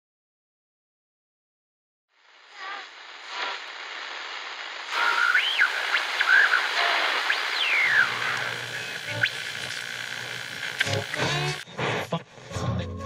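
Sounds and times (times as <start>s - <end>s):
radio static hiss: 2.1s - 12.0s
whistling tuning tones: 4.9s - 11.6s
low hum: 5.0s - 11.6s.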